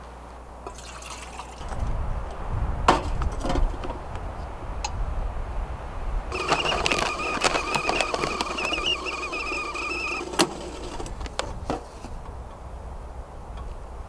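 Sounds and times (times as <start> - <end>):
small electric motor whirring: 6.3 - 11.3
sharp clicks: 6.3 - 11.4.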